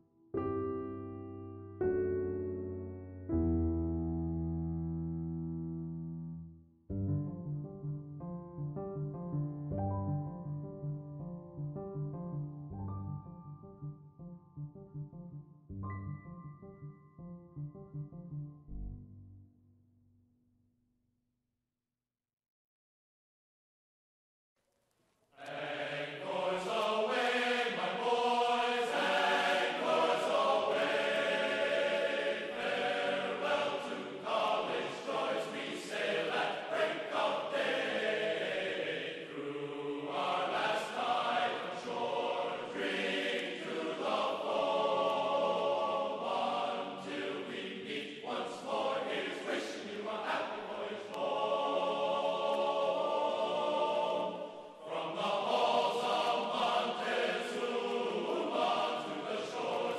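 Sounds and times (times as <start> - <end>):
choir chanting long notes: 25.4 - 59.9.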